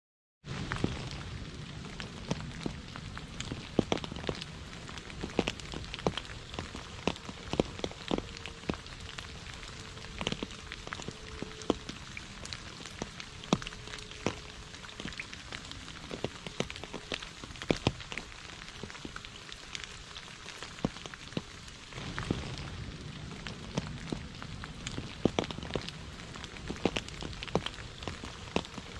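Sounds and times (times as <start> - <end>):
steady rain patter: 0.4 - 28.9.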